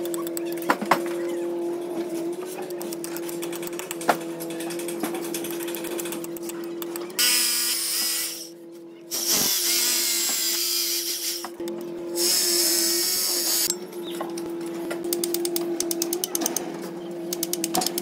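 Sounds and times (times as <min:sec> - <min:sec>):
electric drill boring into concrete: 0:12.2 - 0:13.7.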